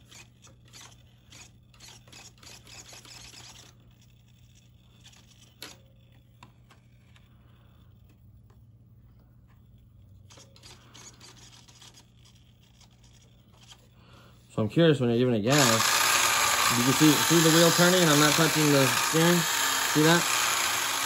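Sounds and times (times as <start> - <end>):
plastic toy car rustling: 0.0 - 8.2, 9.5 - 14.0
steady low hum: 0.0 - 21.0.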